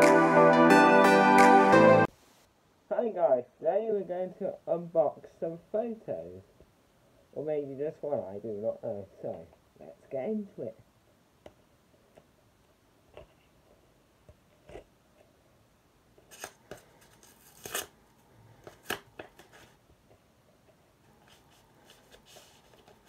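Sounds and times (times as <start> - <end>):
paper envelope tearing: 16.3 - 18.0.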